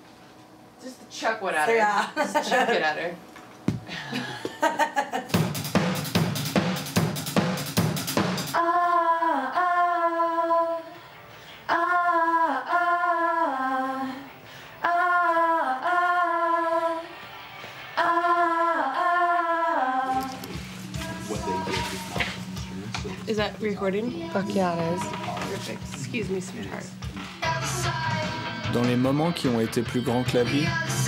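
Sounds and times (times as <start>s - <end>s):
drum kit played hard: 5.3s - 8.6s, 24.4s - 31.0s
woman singing: 8.6s - 11.0s, 11.7s - 17.1s, 18.0s - 22.4s, 23.1s - 28.8s, 30.0s - 31.0s.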